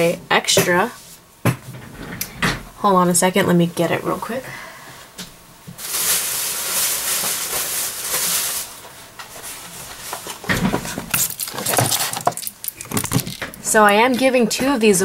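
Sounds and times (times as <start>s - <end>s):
rustling packaging handling: 5.8s - 14.3s.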